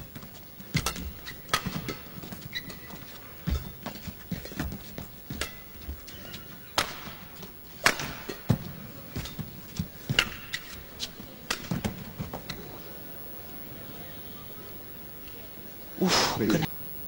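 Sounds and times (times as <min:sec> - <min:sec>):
shoe squeaks: 0:00.7 - 0:06.7, 0:10.1 - 0:11.2
rackets striking shuttlecock: 0:05.3 - 0:08.6.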